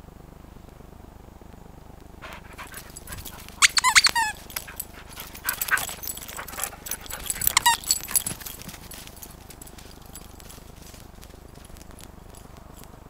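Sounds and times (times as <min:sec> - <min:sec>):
squeaky dog toy: 0:02.2 - 0:08.5.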